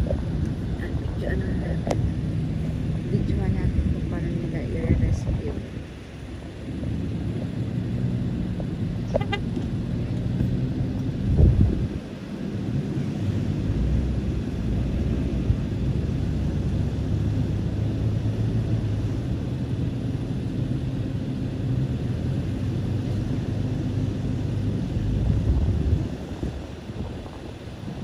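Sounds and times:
vehicle engine rumbling: 0.0 - 28.0.

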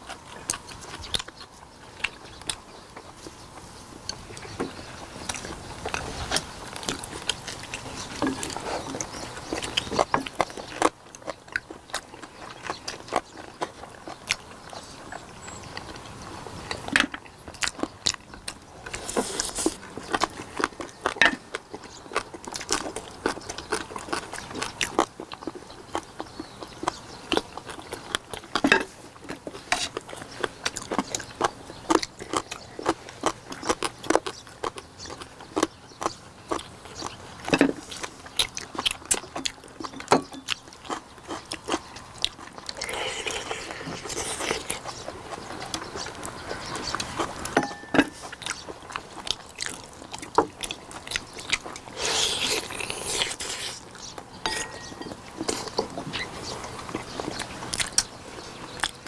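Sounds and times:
close chewing and biting: 0.0 - 59.0.

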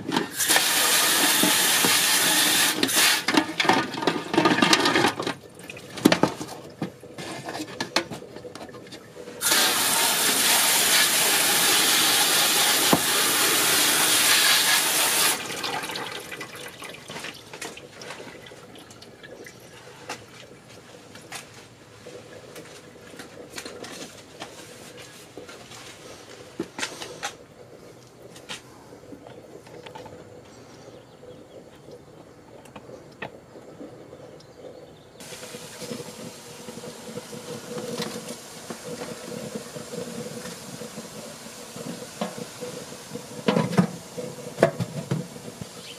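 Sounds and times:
hose nozzle spraying water: 0.3 - 3.4, 9.4 - 15.6, 35.2 - 45.9.

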